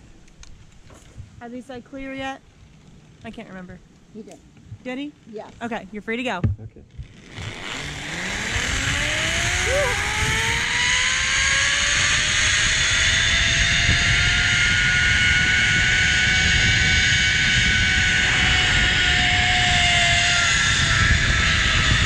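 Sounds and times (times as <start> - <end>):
zipline pulleys whining on cable: 7.0 - 22.0
rushing noise: 7.2 - 22.0.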